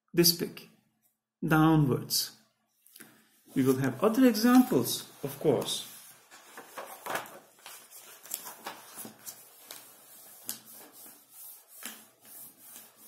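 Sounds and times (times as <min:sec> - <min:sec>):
paper rustling and tapping: 0:04.3 - 0:13.0.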